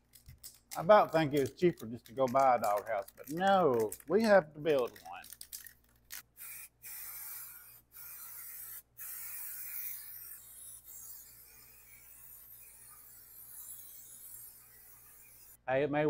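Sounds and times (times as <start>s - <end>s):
aerosol can spraying: 6.0s - 15.6s.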